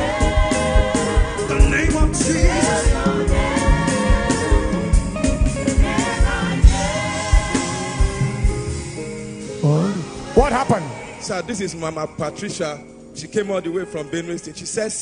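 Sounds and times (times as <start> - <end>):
voices singing together: 0.0 - 8.9, 9.8 - 12.0
steady drum beat: 0.0 - 12.4.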